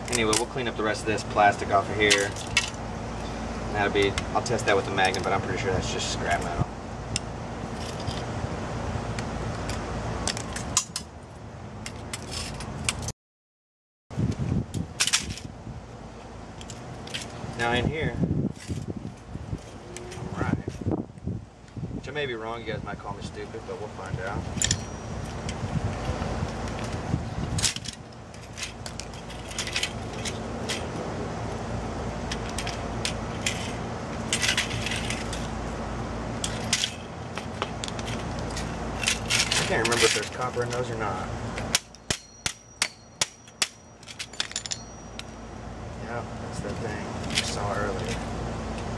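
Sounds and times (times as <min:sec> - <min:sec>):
metal parts and tools clinking: 0:00.0 - 0:03.3, 0:07.8 - 0:08.3, 0:11.8 - 0:13.1, 0:14.8 - 0:15.5, 0:18.5 - 0:20.8, 0:24.4 - 0:27.0, 0:27.6 - 0:31.0, 0:32.2 - 0:35.6, 0:36.4 - 0:45.4, 0:46.6 - 0:48.3
steady low hum: 0:00.0 - 0:13.1, 0:14.2 - 0:48.9.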